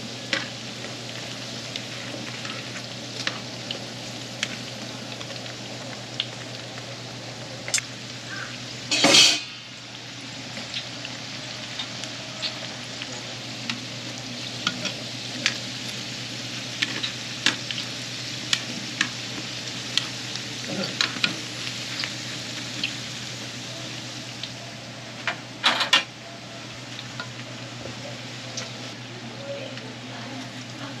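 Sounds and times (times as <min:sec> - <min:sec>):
oil crackling and popping: 0:00.0 - 0:23.6
food sizzling in hot oil: 0:00.0 - 0:31.0.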